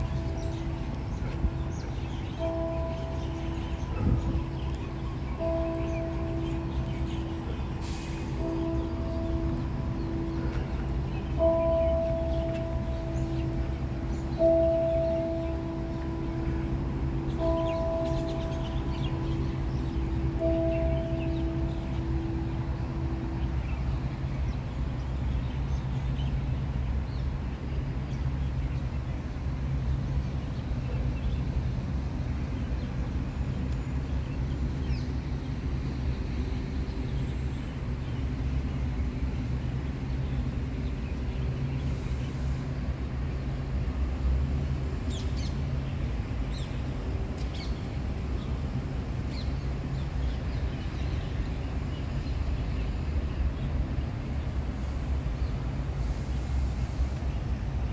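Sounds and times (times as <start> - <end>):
low outdoor rumble: 0.0 - 57.9.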